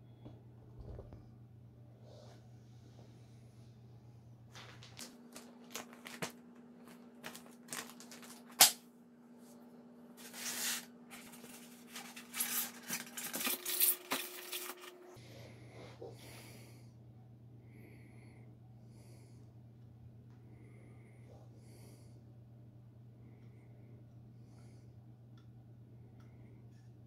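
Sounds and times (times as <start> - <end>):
plastic crinkling and rustling: 4.5 - 8.7, 10.2 - 15.0.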